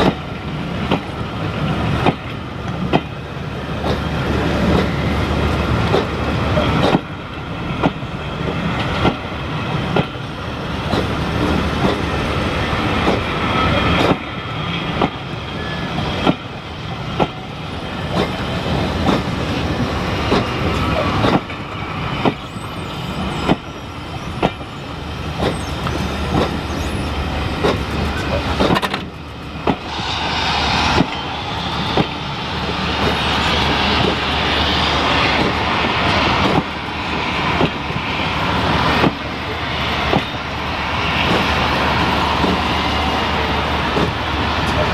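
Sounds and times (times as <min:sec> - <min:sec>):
train coaches rumbling: 0:00.0 - 0:44.9
rushing noise: 0:00.8 - 0:44.9.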